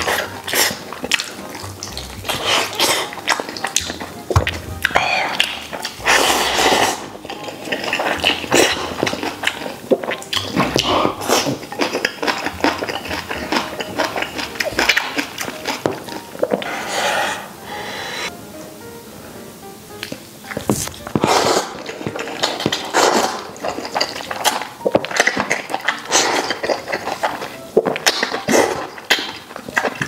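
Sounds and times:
chewing and lip-smacking: 0.0 - 16.7, 20.0 - 30.0
noodles slurping: 0.0 - 18.3, 20.0 - 30.0.

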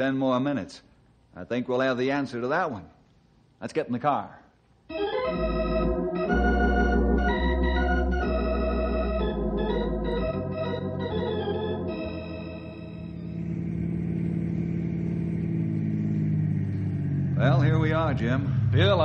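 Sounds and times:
organ chords: 4.9 - 19.0
car engine: 10.6 - 19.0.

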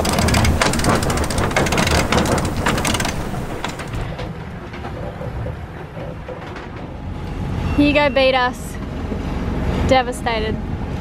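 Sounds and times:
water rushing along hull: 0.0 - 6.4
wind buffeting microphone: 0.0 - 7.2.

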